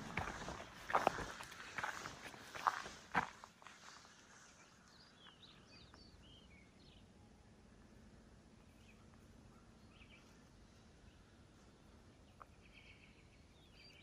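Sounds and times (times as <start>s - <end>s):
faint bird chirps: 3.8s - 14.0s.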